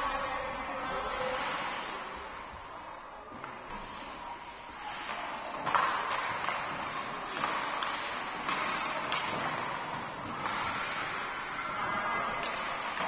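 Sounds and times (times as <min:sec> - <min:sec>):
hockey sticks and puck knocking: 0:05.0 - 0:11.2, 0:11.8 - 0:13.0.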